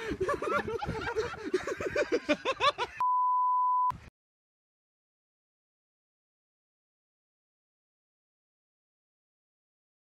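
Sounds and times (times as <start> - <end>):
person laughing hard: 0.0 - 3.0
censor bleep: 3.0 - 4.0.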